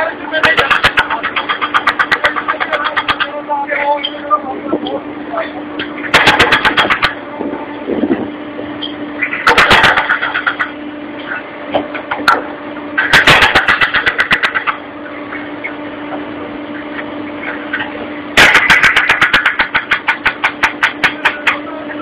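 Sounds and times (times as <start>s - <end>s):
steady machine hum: 0.0s - 22.0s
rapid knocking of cutting picks: 0.4s - 3.4s, 6.1s - 7.1s, 13.0s - 14.8s, 18.4s - 21.6s.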